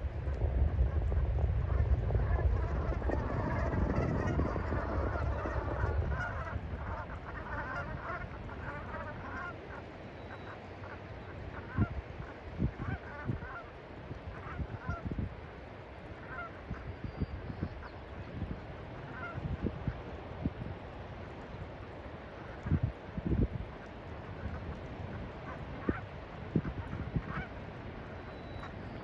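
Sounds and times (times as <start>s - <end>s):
low rumble: 0.0s - 9.1s
geese calling: 1.0s - 13.7s, 16.2s - 16.9s, 19.0s - 19.4s, 24.4s - 29.0s.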